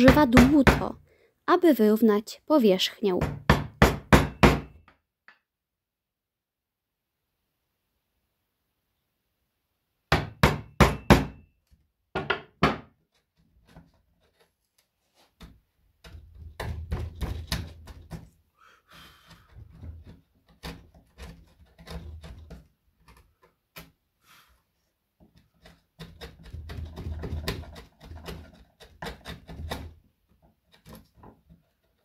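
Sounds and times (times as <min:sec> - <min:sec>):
mallet striking wood chisel: 0:03.2 - 0:04.9, 0:10.1 - 0:11.4
chisel paring and scraping wood: 0:12.2 - 0:18.4, 0:19.1 - 0:24.0, 0:25.2 - 0:32.0.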